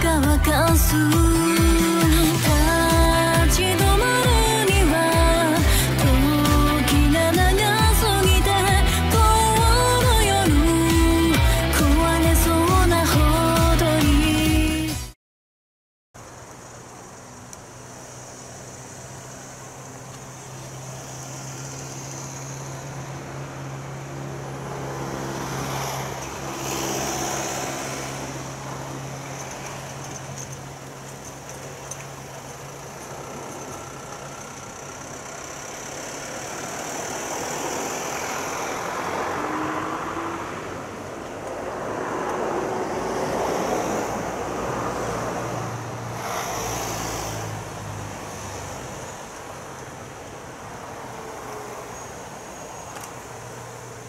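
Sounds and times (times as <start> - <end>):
low engine hum of traffic: 0.0 - 15.2, 16.2 - 54.0
vehicles passing: 0.0 - 15.2, 16.2 - 54.0.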